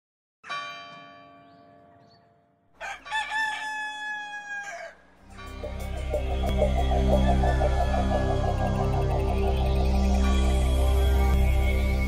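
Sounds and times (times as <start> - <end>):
church bell ringing: 0.4 - 2.6
rooster crowing: 2.8 - 5.1
music: 5.2 - 12.0.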